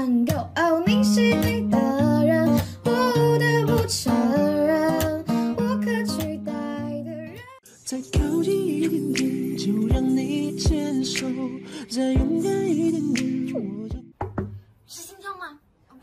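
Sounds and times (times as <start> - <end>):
plucked guitar: 0.0 - 7.6, 8.2 - 14.4
person singing: 0.0 - 14.2
bass line: 8.2 - 14.1.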